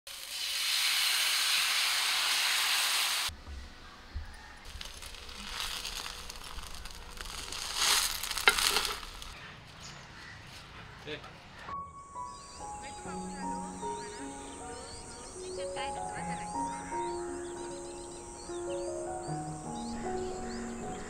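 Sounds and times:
batter sizzling in a hot pan: 0:00.1 - 0:03.3, 0:04.7 - 0:09.4
crackling: 0:04.6 - 0:09.4.

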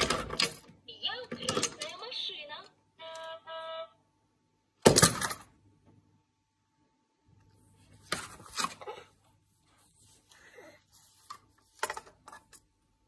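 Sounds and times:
plastic toy clattering: 0:00.0 - 0:02.0.

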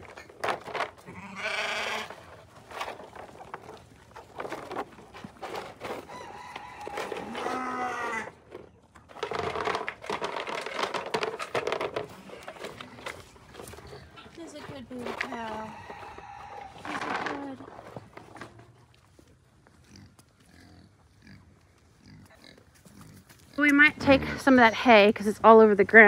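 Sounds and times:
sheep bleating: 0:01.0 - 0:02.1.

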